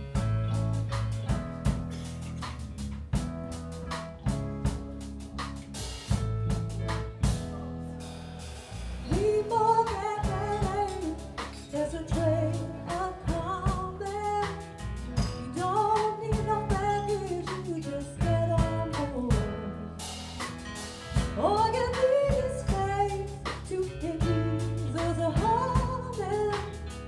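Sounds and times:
live pop-rock band playing: 0.0 - 27.0
woman singing through pa: 9.1 - 19.9, 21.4 - 26.8.

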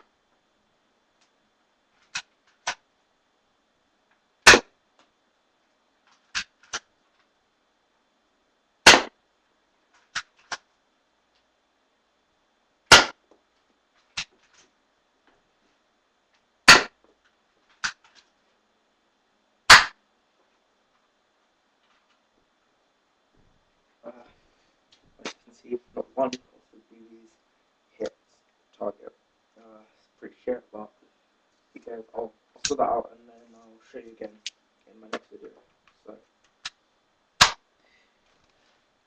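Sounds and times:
pistol shots cracking: 4.4 - 4.7, 8.8 - 9.1, 12.9 - 13.2, 16.7 - 16.9, 19.7 - 20.0.

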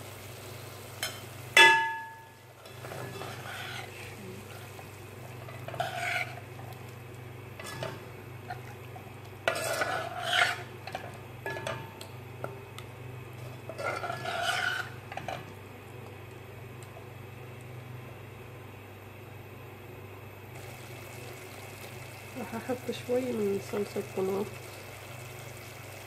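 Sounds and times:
light sizzling: 0.0 - 18.6, 20.5 - 26.0
spoon scraping a pan: 2.6 - 4.8, 5.4 - 6.5, 7.6 - 8.6, 9.4 - 11.8, 13.4 - 15.5.

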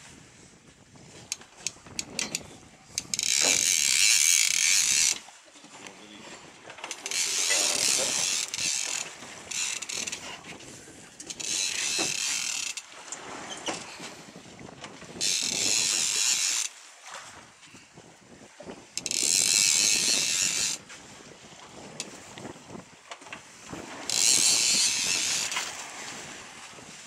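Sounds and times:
fishing reel ratcheting: 1.3 - 5.3, 6.9 - 10.3, 11.2 - 12.9, 15.2 - 16.7, 19.0 - 20.8, 24.1 - 25.8.

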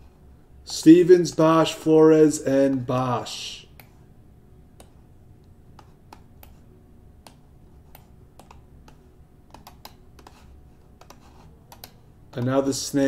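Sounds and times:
computer keyboard typing: 7.2 - 12.6.

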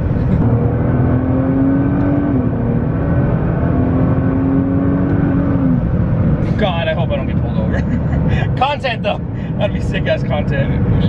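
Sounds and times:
car engine droning: 0.0 - 11.0
road noise: 0.0 - 11.0.

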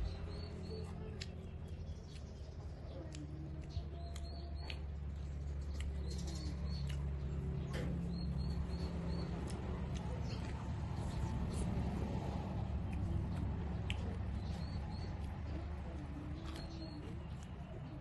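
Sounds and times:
steady low hum: 0.0 - 18.0
lip smacks: 0.1 - 18.0
person chewing: 0.4 - 17.7
sharp mouth clicks: 0.7 - 11.9, 12.9 - 15.5.

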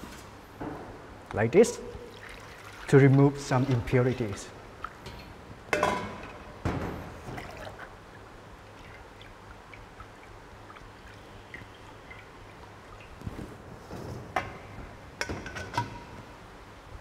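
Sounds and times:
water splashing through beans: 2.0 - 5.1
water dripping and trickling: 2.0 - 5.4, 7.3 - 13.7.

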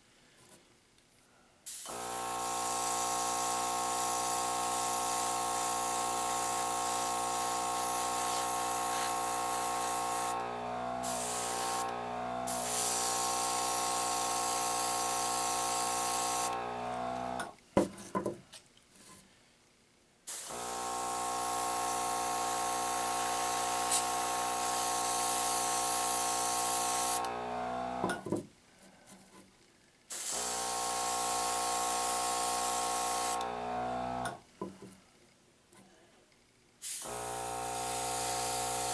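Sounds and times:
airbrush spraying hiss: 1.7 - 16.8, 20.3 - 27.3
compressor humming: 1.9 - 17.5, 20.5 - 28.2.

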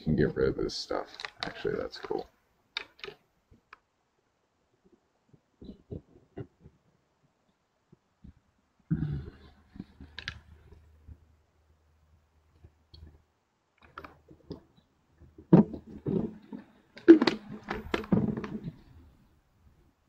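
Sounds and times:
irregular clicks and taps: 1.1 - 3.9, 9.7 - 11.3, 12.5 - 13.2, 13.8 - 18.9.

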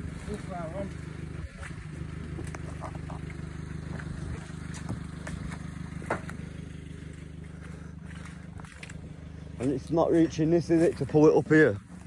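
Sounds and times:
engine idling: 0.0 - 12.0.

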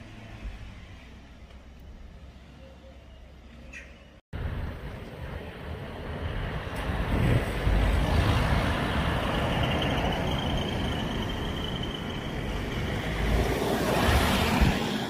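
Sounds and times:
road traffic: 0.0 - 15.0
wind buffeting microphone: 4.4 - 10.9, 12.8 - 15.0.

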